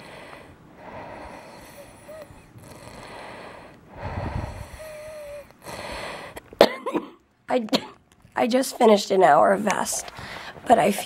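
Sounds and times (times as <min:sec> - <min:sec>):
laboured breathing with rattle: 0:00.0 - 0:06.6, 0:09.9 - 0:10.7.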